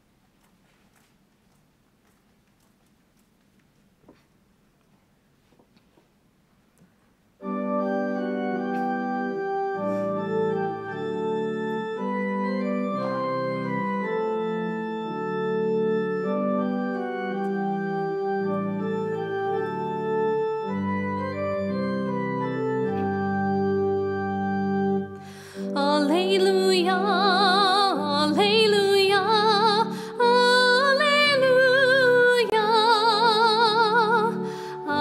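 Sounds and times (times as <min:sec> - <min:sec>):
organ playing sustained chords: 0:07.4 - 0:35.0.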